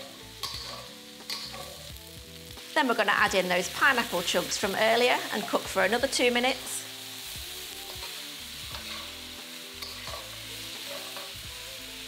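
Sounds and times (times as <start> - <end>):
metal spatula scraping pan: 0.0 - 1.9, 7.9 - 11.4
food sizzling in a wok: 0.0 - 12.0.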